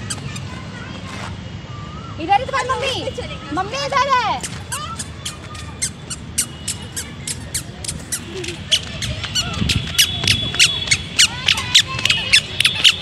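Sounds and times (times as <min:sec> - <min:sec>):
small animal chirping: 0:04.4 - 0:11.0.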